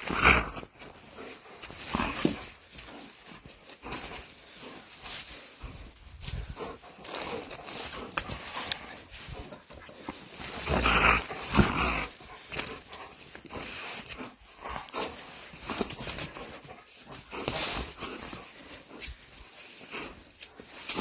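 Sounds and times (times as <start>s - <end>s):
dog growling while playing tug: 0.0s - 3.1s, 5.1s - 18.5s.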